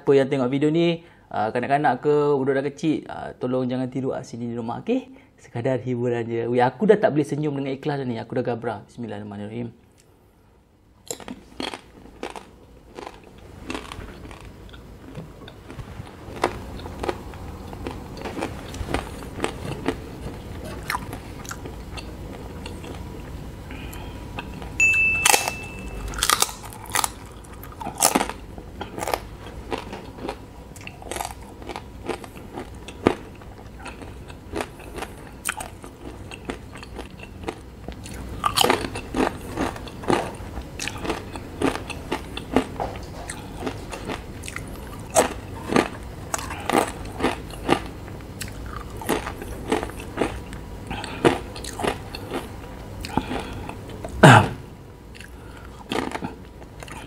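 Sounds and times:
crunching tortilla chips: 0:11.1 - 0:20.0, 0:26.1 - 0:33.2.

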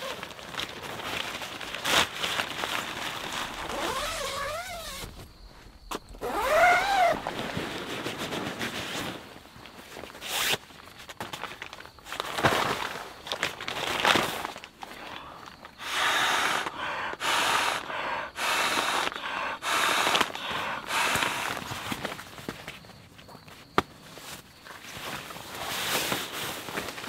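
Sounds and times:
camping gear rustling and knocking: 0:00.0 - 0:14.9, 0:20.9 - 0:27.0.

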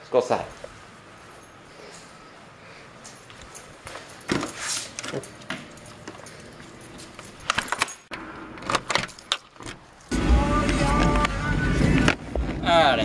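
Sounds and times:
keys jangling on a ring: 0:00.5 - 0:02.4, 0:03.0 - 0:08.1
key turning in a deadbolt lock: 0:04.9 - 0:09.9
door opening and shutting: 0:07.0 - 0:12.6.

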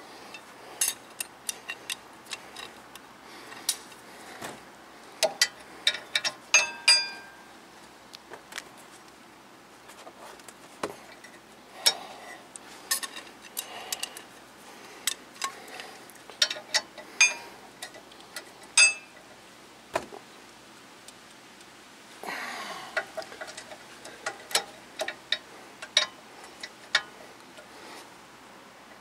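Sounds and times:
metallic clicks of hand tools: 0:05.2 - 0:07.2, 0:11.1 - 0:14.3, 0:16.3 - 0:19.2, 0:22.9 - 0:27.7.

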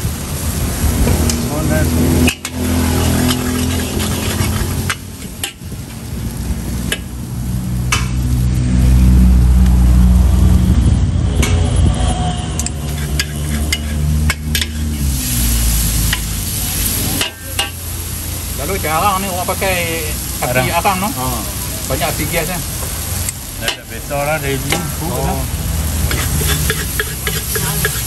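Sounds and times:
oil sizzling in a wok: 0:00.0 - 0:10.6, 0:12.5 - 0:28.0
low rumble: 0:00.0 - 0:17.2
metal spatula scraping: 0:02.2 - 0:05.6, 0:12.7 - 0:15.0, 0:26.0 - 0:28.0
spatula clinking on wok: 0:12.8 - 0:14.9, 0:26.1 - 0:28.0.

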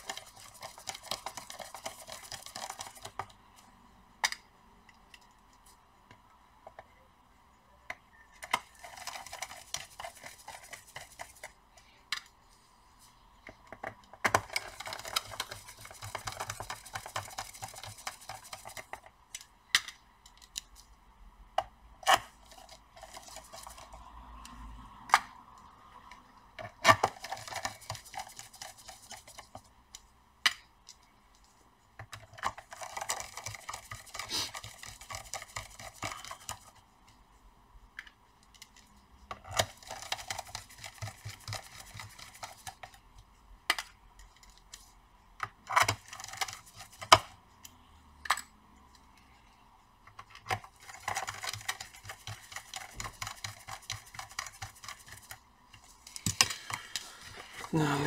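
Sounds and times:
screwdriver ticking and scraping: 0:00.0 - 0:03.5, 0:13.5 - 0:19.5, 0:26.6 - 0:30.0, 0:32.0 - 0:36.8, 0:38.4 - 0:44.8, 0:45.4 - 0:48.5, 0:50.1 - 0:57.7.

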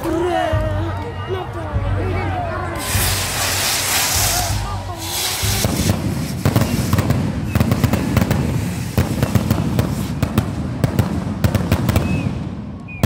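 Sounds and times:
fireworks bangs and crackles: 0:02.8 - 0:13.0.

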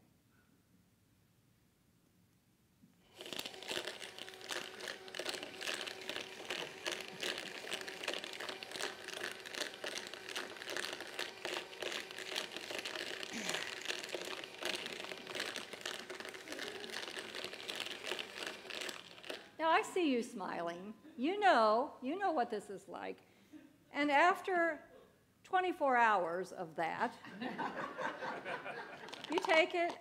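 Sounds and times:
motor hum: 0:03.1 - 0:19.6.

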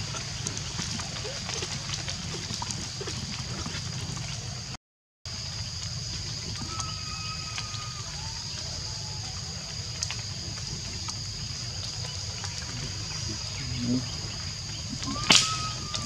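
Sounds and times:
short whistled call: 0:15.0 - 0:16.0.

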